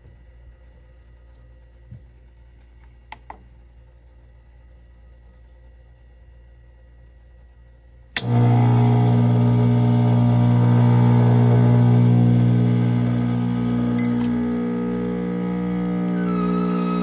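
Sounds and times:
espresso machine pump humming: 8.2s - 17.0s.

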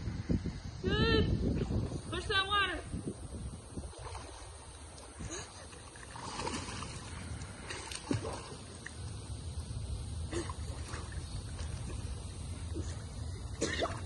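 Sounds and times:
low steady rumble: 0.0s - 14.0s
child splashing in a pool: 3.9s - 9.0s.

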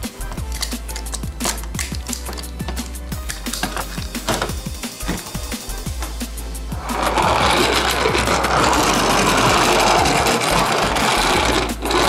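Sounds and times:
toy car wheels rolling: 6.8s - 12.0s.

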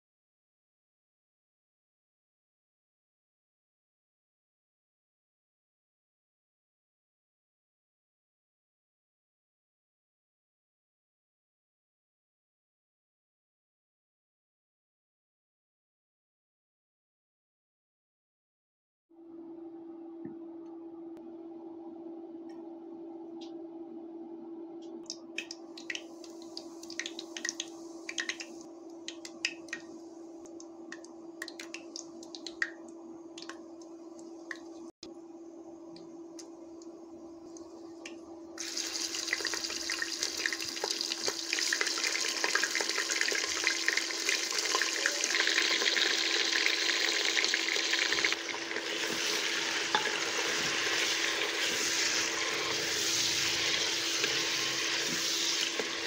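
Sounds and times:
seeds crackling in hot oil: 25.1s - 34.9s, 36.3s - 56.0s
meat sizzling in oil: 38.6s - 56.0s.

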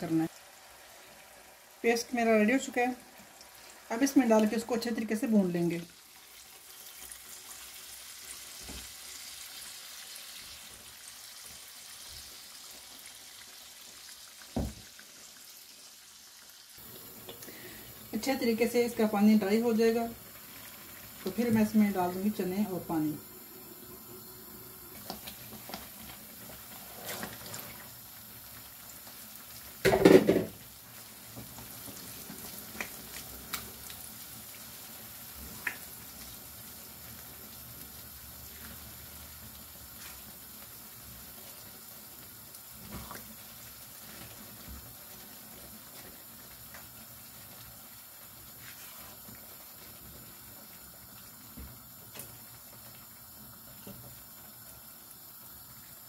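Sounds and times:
food sizzling in a pan: 0.0s - 56.0s
spatula scraping a pan: 26.7s - 27.8s.

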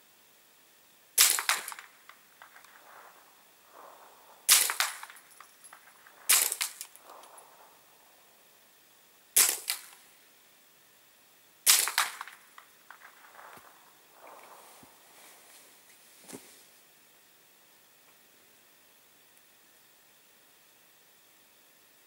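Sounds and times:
suppressed rifle shots: 1.2s - 8.4s, 9.4s - 10.0s, 11.7s - 15.2s.

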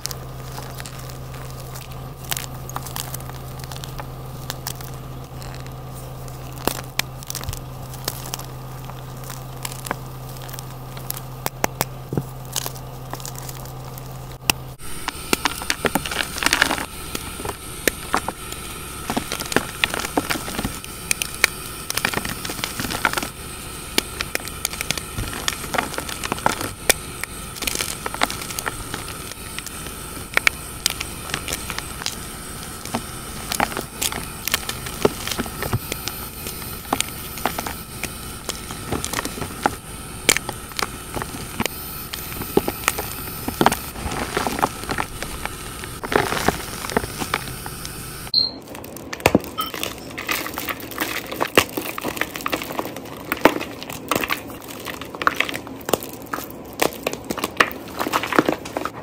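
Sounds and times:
chalk crackling and crunching: 0.0s - 59.0s
low steady hum: 0.0s - 59.0s.

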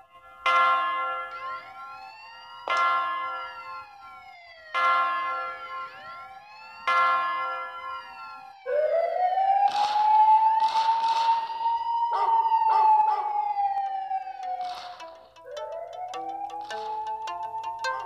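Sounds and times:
siren-like whine: 8.2s - 18.0s.

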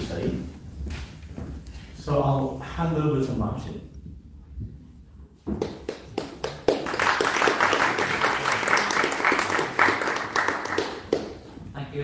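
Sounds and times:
audience applauding: 5.6s - 11.5s.

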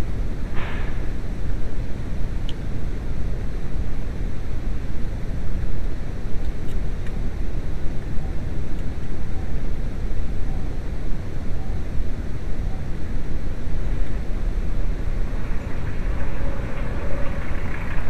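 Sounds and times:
diesel engine running: 6.9s - 18.0s.

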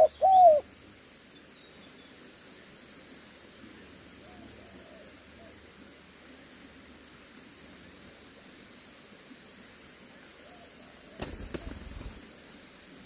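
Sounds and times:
steady hiss: 0.0s - 13.0s.

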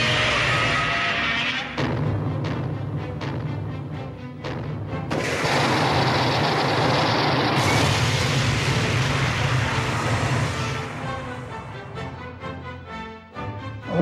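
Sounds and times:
rushing blast with deep rumble: 5.1s - 12.1s.

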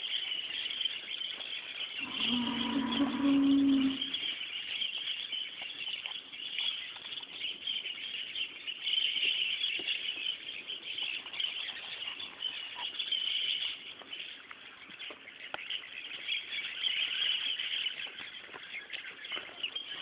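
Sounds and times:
high-pitched chirring: 2.0s - 4.2s.

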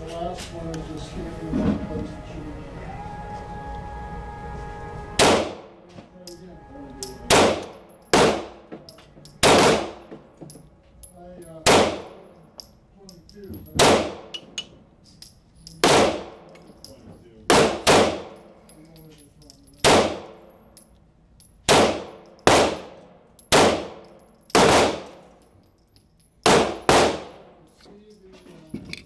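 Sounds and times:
pistol shots echoing: 5.2s - 5.8s, 7.1s - 8.7s, 9.4s - 10.1s, 11.6s - 12.3s, 13.8s - 14.6s, 15.8s - 16.5s, 17.5s - 18.6s, 19.8s - 20.5s, 21.6s - 25.3s, 26.4s - 27.6s.

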